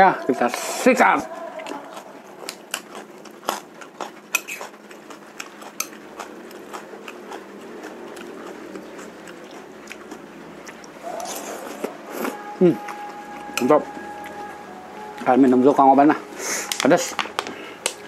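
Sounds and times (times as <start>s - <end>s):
close chewing: 0.1s - 14.5s.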